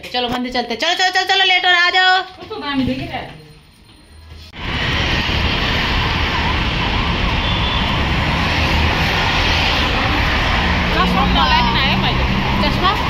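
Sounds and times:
roadside traffic rumble: 0:04.2 - 0:13.0.

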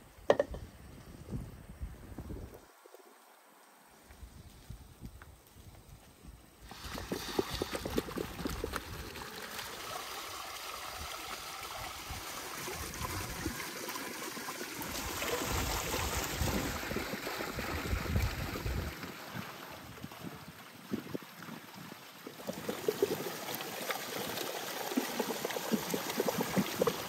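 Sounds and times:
water splashing onto stones: 0:06.7 - 0:12.4.

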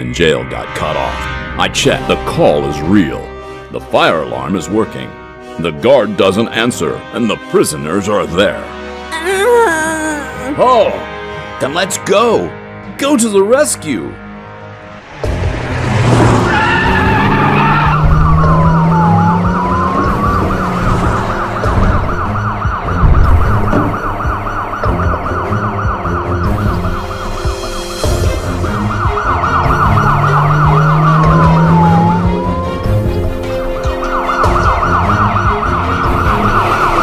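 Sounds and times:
low engine drone: 0:14.3 - 0:37.0
emergency vehicle sirens wailing: 0:15.0 - 0:37.0.

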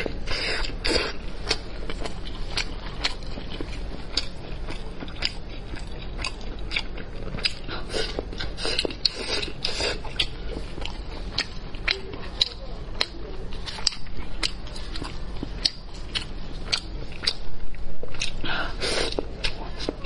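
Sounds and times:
biting and chewing meat: 0:00.0 - 0:20.0.

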